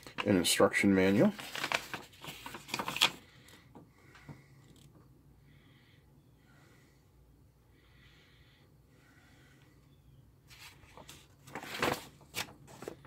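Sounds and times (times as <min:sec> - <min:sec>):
paper crackling and rustling: 0:00.0 - 0:03.3, 0:10.5 - 0:13.0.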